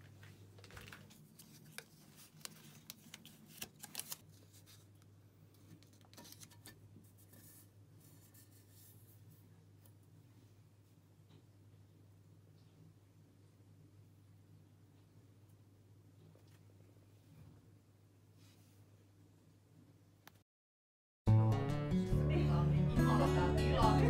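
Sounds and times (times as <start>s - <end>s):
soft handling rustling: 0.0s - 10.0s.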